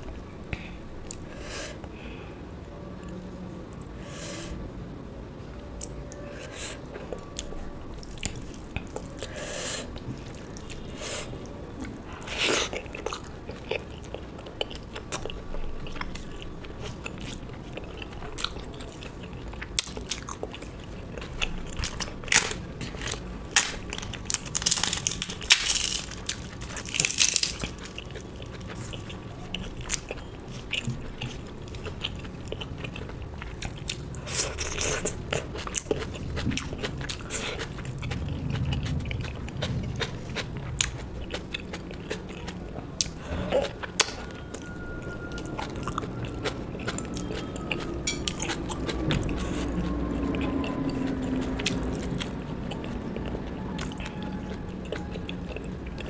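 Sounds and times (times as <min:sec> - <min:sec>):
person chewing crunchy food: 0:05.8 - 0:56.0.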